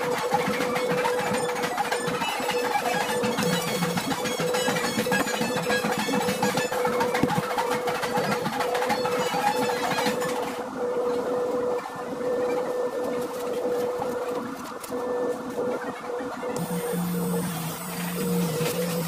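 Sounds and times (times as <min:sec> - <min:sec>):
polishing tool motor humming: 0:16.6 - 0:19.0.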